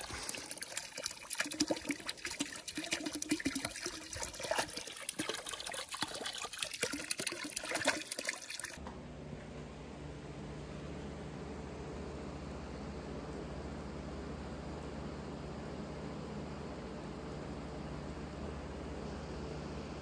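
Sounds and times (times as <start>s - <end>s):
hose pouring into water: 0.0s - 8.8s
steady low hum: 8.8s - 20.0s.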